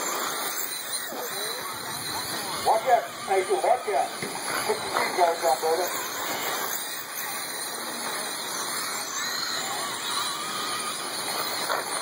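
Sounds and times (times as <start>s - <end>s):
rc car motors whining: 0.0s - 12.0s.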